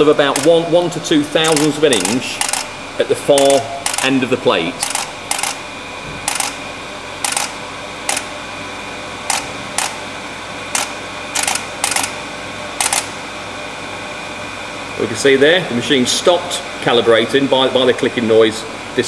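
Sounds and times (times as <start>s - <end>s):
steady machine hum: 0.0s - 19.0s
machine sharp clicks: 0.3s - 0.7s, 1.4s - 4.2s, 4.8s - 5.6s, 6.2s - 6.6s, 7.2s - 8.3s, 9.3s - 10.0s, 10.7s - 12.2s, 12.8s - 13.1s.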